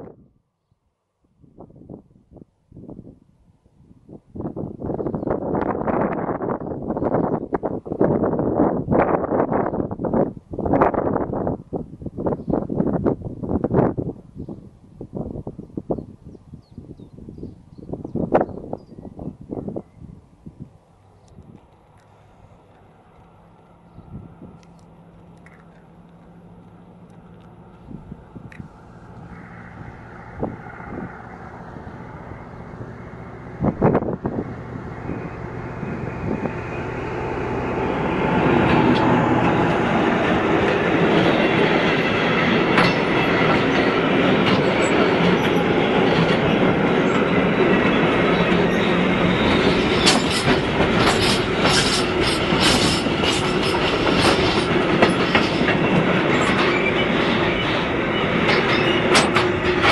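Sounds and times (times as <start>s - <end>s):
locomotive engine hum: 1.3s - 59.9s
train wheels clacking over rail joints: 36.9s - 59.9s.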